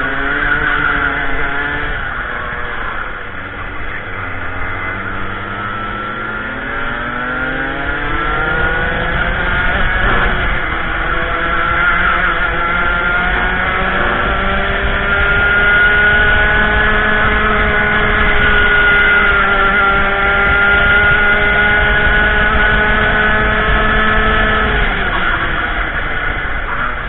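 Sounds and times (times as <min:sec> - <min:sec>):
kart engine revving: 0:00.0 - 0:27.0.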